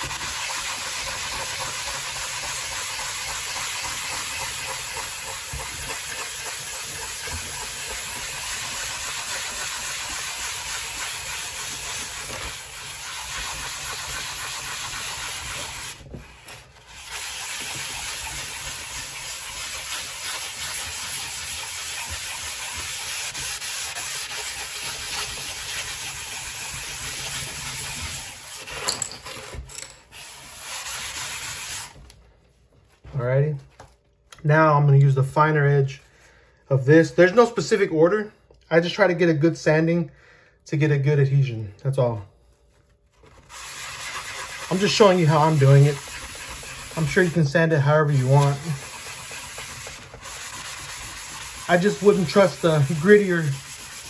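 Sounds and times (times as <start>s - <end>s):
sanding sponge rubbing on glass: 0.0s - 28.9s, 30.2s - 32.0s, 43.4s - 54.0s.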